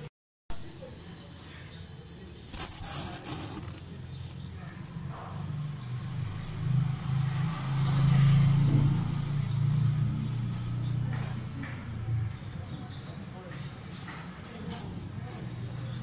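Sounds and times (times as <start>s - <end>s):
crackling: 2.4s - 16.0s
engine-like motor hum: 4.5s - 16.0s.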